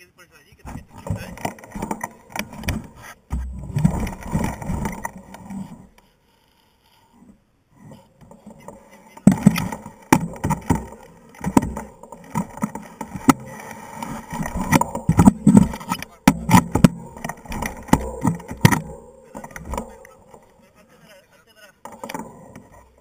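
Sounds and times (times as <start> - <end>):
mountain bike clattering on rocks: 0.7 - 6.0, 8.2 - 20.7.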